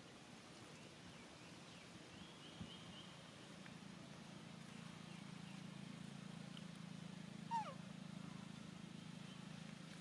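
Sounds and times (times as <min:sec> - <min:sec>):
steady low hum: 0:00.0 - 0:10.0
macaque squeak: 0:07.5 - 0:07.8.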